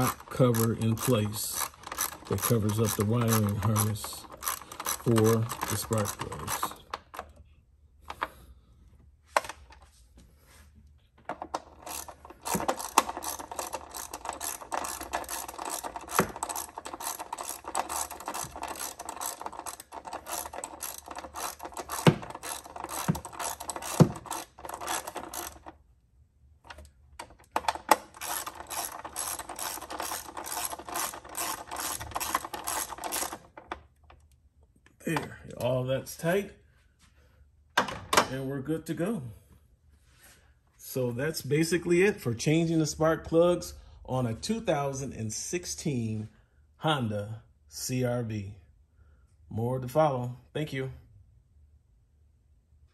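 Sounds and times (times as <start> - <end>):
ratchet wrench clicking: 0.0 - 6.8, 11.7 - 25.7, 27.6 - 33.6.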